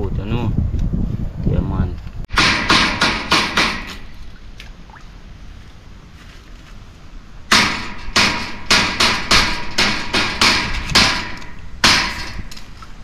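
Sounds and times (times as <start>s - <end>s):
machete chopping on metal grate: 2.3s - 4.1s, 7.5s - 12.6s.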